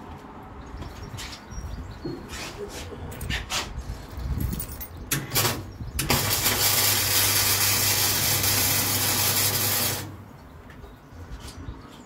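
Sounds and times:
welding arc crackling: 5.1s - 10.2s.

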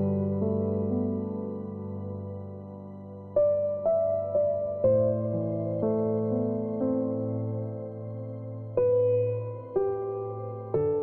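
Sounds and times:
held chord of relaxation music: 0.0s - 11.0s.

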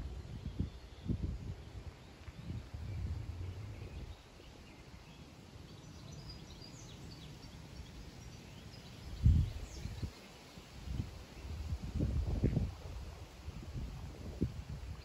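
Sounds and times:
low rumble: 0.0s - 5.4s
small birds chirping: 0.0s - 12.7s.

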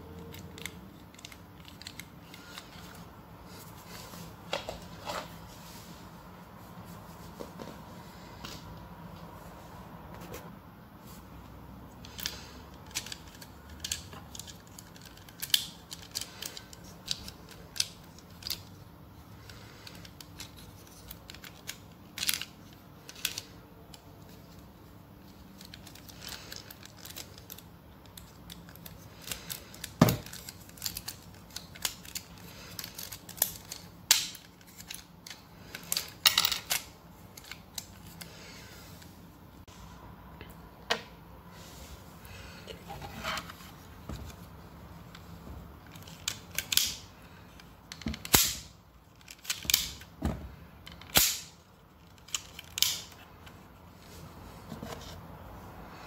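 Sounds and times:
plastic parts clicking and clacking: 0.1s - 3.1s, 12.0s - 38.3s, 42.7s - 53.7s.

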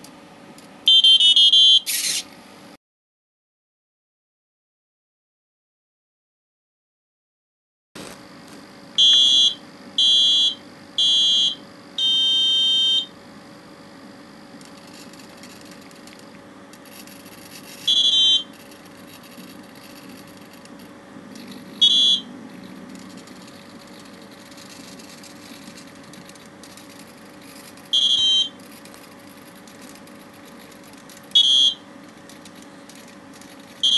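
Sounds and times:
electronic buzzer beeping: 0.9s - 2.2s, 9.0s - 13.1s, 17.6s - 18.9s, 21.5s - 22.4s, 26.8s - 28.6s, 31.3s - 31.9s
faint steady hum: 8.0s - 33.9s.

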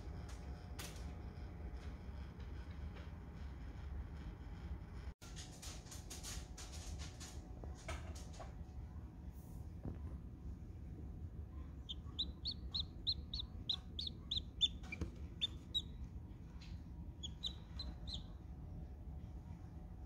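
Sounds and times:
chick peeping: 11.8s - 16.0s, 16.6s - 18.4s.

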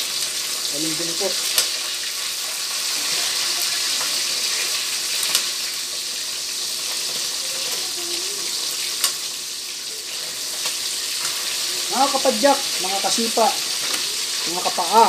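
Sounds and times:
fish frying in oil: 0.0s - 15.0s
metal tongs clicking on pan: 1.5s - 1.8s, 5.2s - 5.5s, 9.0s - 9.2s.

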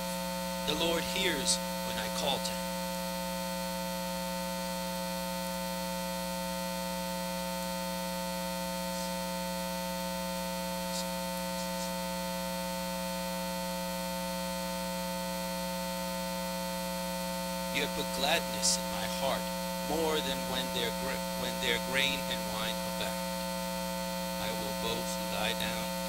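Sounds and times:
electrical mains hum: 0.0s - 26.0s.

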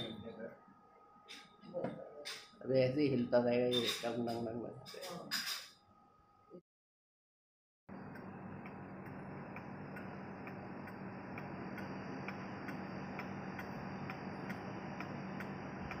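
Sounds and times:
steady low hum: 7.9s - 16.0s.

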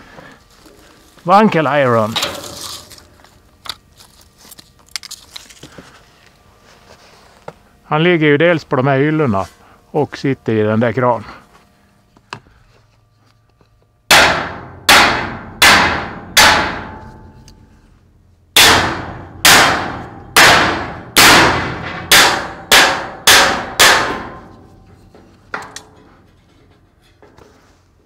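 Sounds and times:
hammer striking steel: 14.1s - 17.6s, 18.6s - 26.2s.

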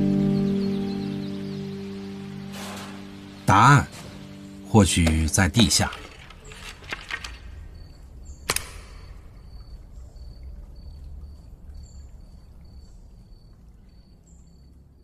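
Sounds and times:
sharp click: 8.4s - 9.1s.

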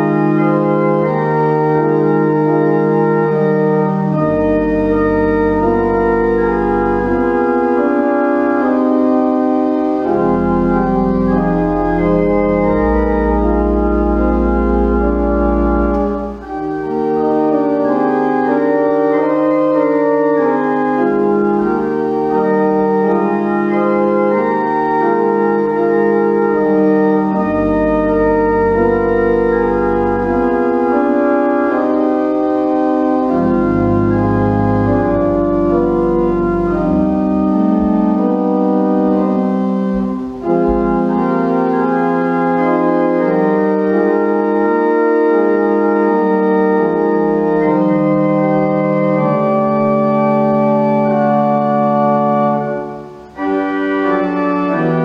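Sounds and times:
deep organ pedal bass notes: 0.0s - 55.0s
pipe organ playing chords: 0.0s - 55.0s.

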